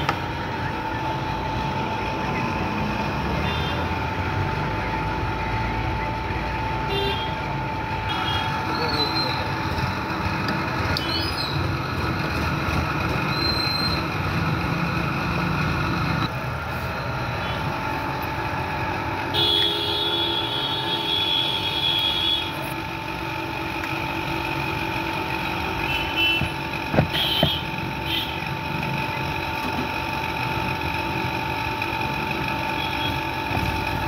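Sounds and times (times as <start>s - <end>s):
high steady tone: 0.0s - 10.2s
street traffic noise: 0.0s - 34.0s
sharp knocks: 26.4s - 27.6s.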